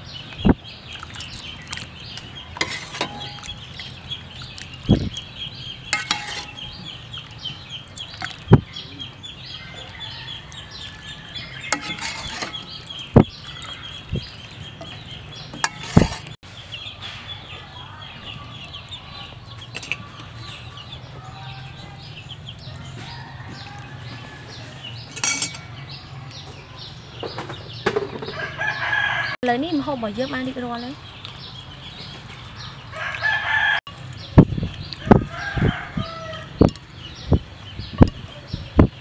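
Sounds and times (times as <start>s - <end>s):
chickens clucking and peeping: 0.0s - 39.0s
spoon knocking ceramic bowl: 25.2s - 25.7s.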